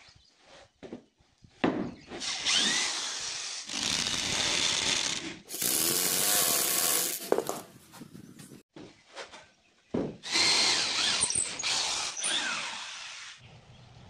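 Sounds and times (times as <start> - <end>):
electric drill driving screws into wood: 2.2 - 7.6, 10.2 - 13.4.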